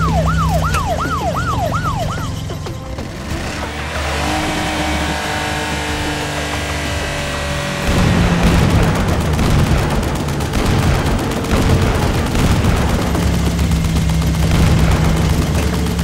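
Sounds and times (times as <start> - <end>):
blasts of shots hitting: 7.8 - 16.0
cartoon machine-gun fire: 7.8 - 16.0.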